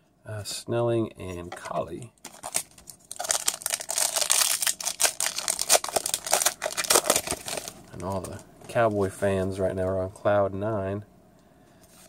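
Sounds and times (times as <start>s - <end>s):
foil wrapper crinkling and tearing: 2.2s - 8.4s.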